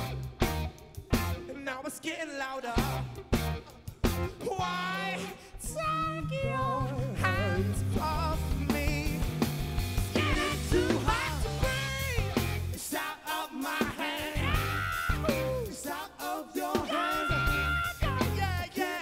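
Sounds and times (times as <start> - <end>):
bass line: 0.0 - 1.6, 2.8 - 12.9, 14.2 - 15.8, 16.9 - 18.7
guitar: 0.0 - 19.0
men singing: 4.4 - 19.0.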